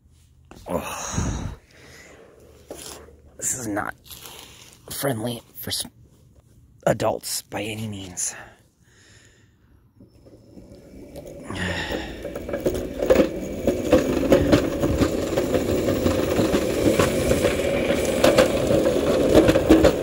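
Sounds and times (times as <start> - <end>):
go-kart rattling over concrete: 10.0 - 20.0.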